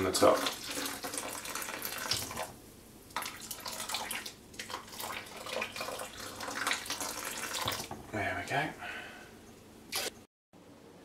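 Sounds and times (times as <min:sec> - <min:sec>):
water pouring and splashing: 0:00.0 - 0:08.1.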